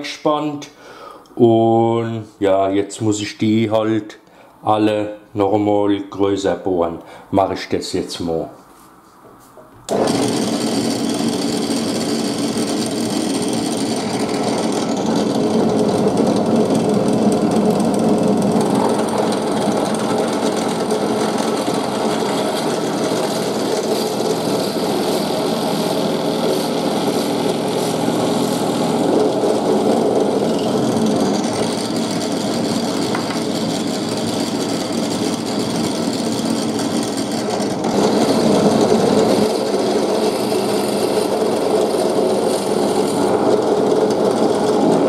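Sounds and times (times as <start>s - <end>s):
drill press boring wood: 9.9s - 45.0s.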